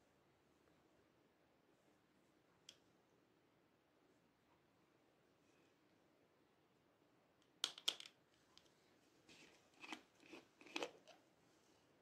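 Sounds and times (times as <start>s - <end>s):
soft clicks and rustles: 7.4s - 11.9s.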